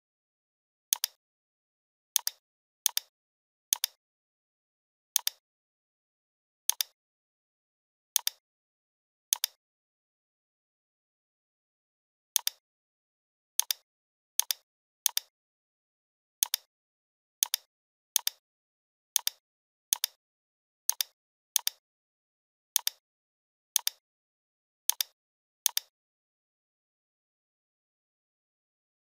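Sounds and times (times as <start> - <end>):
computer mouse clicking: 0.9 - 1.2, 2.2 - 3.1, 3.7 - 4.0, 5.2 - 5.4, 6.7 - 7.0, 8.2 - 8.4, 9.3 - 9.6, 12.4 - 12.6, 13.6 - 13.8, 14.4 - 15.3, 16.4 - 16.7, 17.4 - 18.4, 19.2 - 20.2, 20.9 - 21.8, 22.8 - 23.0, 23.8 - 24.0, 24.9 - 25.9.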